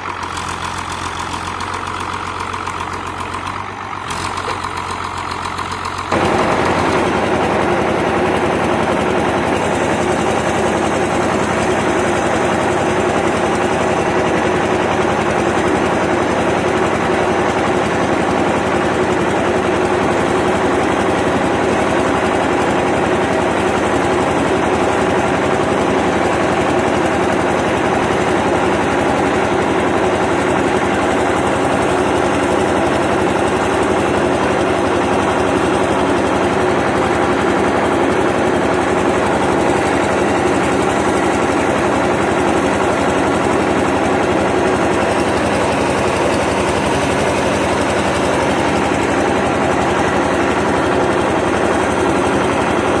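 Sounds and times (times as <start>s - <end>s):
diesel tractor engine running: 0.0s - 53.0s
rattle and vibration: 0.0s - 53.0s.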